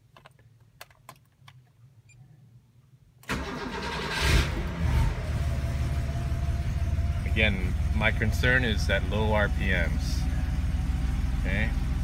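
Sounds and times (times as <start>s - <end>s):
car engine cold start and idle: 3.2s - 12.0s.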